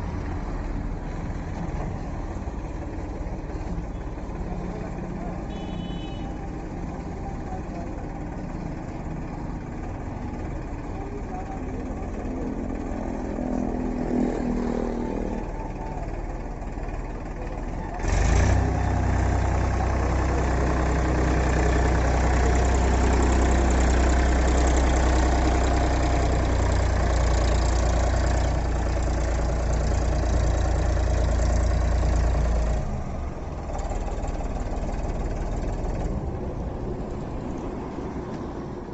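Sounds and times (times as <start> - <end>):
tractor diesel engine rumble: 0.0 - 38.9.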